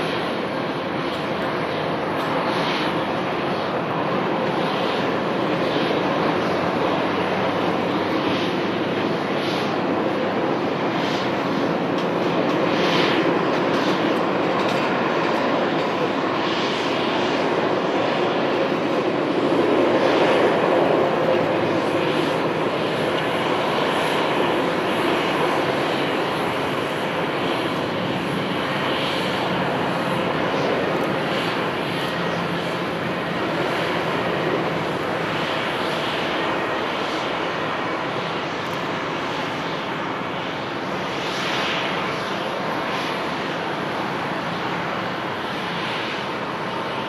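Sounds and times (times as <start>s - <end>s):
jet engines roaring: 0.0s - 47.0s.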